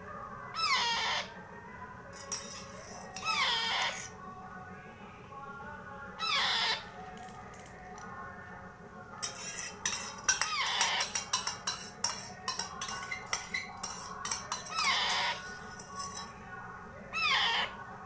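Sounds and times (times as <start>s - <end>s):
parrot chick squawking: 0.6s - 1.3s, 3.2s - 4.1s, 6.2s - 6.9s, 10.3s - 11.4s, 14.2s - 15.6s, 17.1s - 17.8s.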